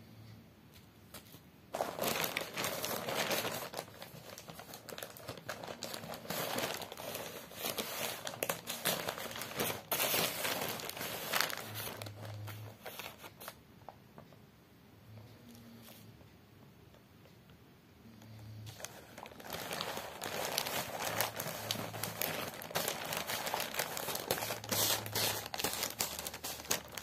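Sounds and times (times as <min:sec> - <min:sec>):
plastic bag crinkling: 0:01.7 - 0:13.6, 0:18.7 - 0:27.0.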